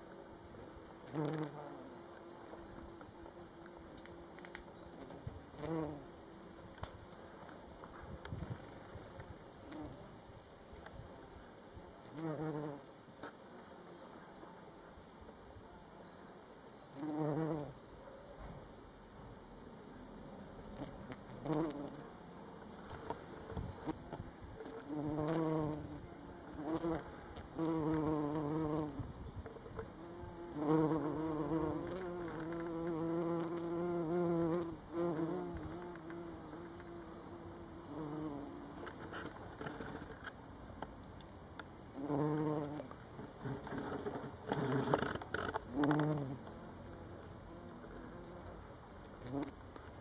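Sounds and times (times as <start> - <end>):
bumblebee buzzing: 1.0 - 6.6, 12.0 - 12.9, 16.9 - 17.8, 20.6 - 22.2, 23.0 - 29.1, 29.9 - 39.0, 41.9 - 43.6, 44.3 - 48.6, 49.2 - 50.0.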